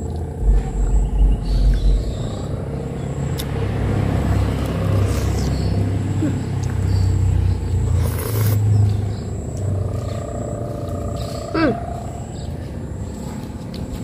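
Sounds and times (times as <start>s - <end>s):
steady low rumble: 0.0s - 6.6s
slurping noodles: 8.0s - 8.6s.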